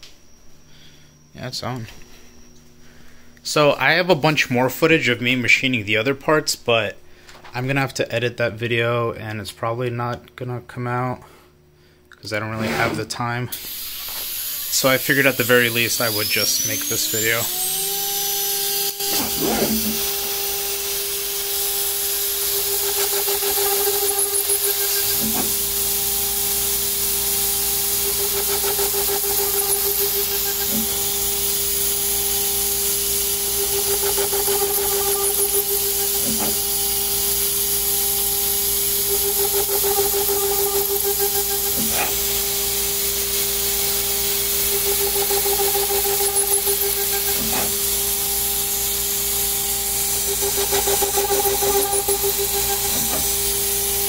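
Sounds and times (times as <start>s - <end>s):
router spindle whining: 12.5s - 54.0s
drill bit drilling into metal: 13.6s - 54.0s.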